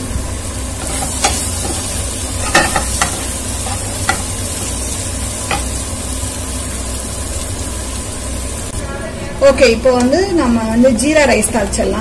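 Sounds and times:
potatoes sizzling in oil: 0.0s - 12.0s
spatula knocking and scraping pan: 0.8s - 4.8s, 5.4s - 5.8s.

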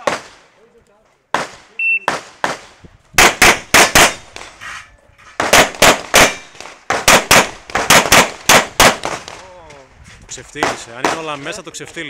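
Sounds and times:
pistol shots: 1.3s - 4.5s, 5.4s - 9.4s.

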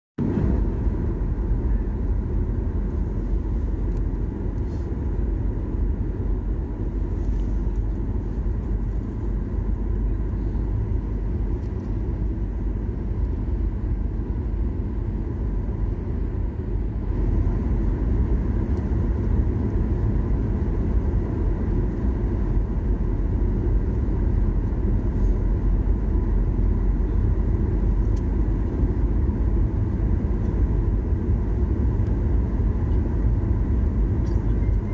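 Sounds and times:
airliner engine rumble in cabin: 0.2s - 34.9s
faint steady whine: 0.2s - 34.9s.

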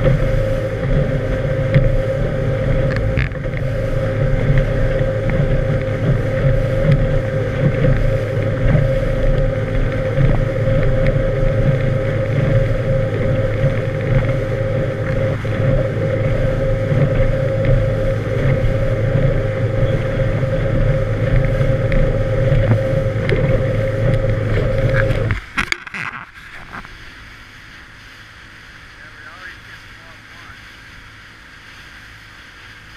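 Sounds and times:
boat motor running: 0.0s - 32.9s
wake spray along hull: 0.0s - 32.9s
water and wind: 0.0s - 32.9s.

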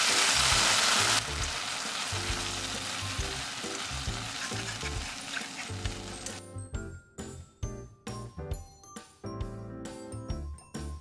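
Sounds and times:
egg sizzling in a frying pan: 0.0s - 6.4s.

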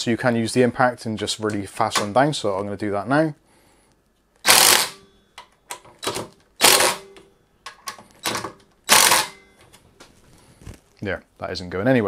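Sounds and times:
impact driver hammering bolts: 4.4s - 9.4s.

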